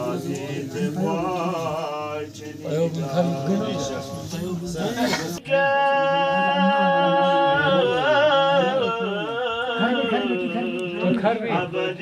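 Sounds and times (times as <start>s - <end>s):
high voice singing: 0.0s - 12.0s
lower voice singing: 0.0s - 12.0s.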